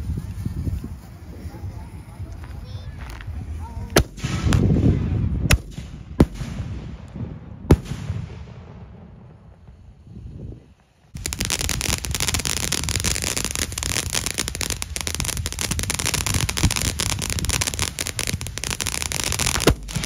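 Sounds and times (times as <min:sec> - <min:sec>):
fireworks crackling and popping: 0:00.0 - 0:20.0
sharp firework bang: 0:04.0 - 0:09.7.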